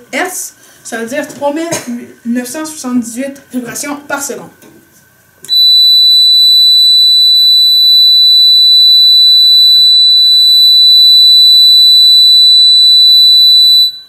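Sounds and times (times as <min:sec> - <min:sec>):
high-pitched steady tone: 0:05.5 - 0:14.0.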